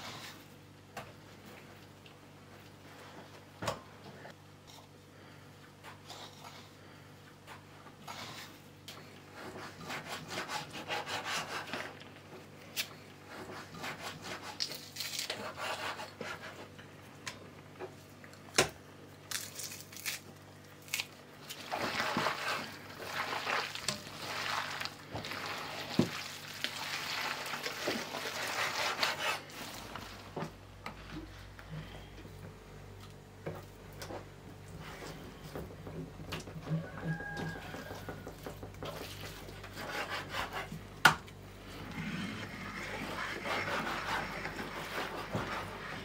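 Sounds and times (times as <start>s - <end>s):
hands kneading wet mince: 20.8s - 31.7s, 33.0s - 46.0s.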